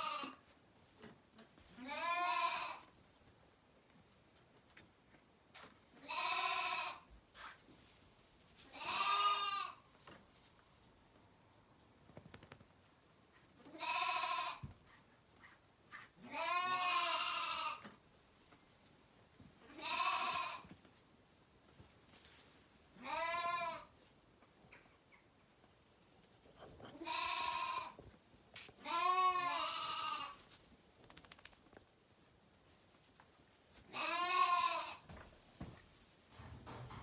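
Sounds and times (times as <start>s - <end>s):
lambs bleating: 1.8s - 2.9s, 6.0s - 7.0s, 8.7s - 9.8s, 13.6s - 14.6s, 16.2s - 17.8s, 19.7s - 20.6s, 23.0s - 23.9s, 26.9s - 28.0s, 28.8s - 30.4s, 33.9s - 35.1s.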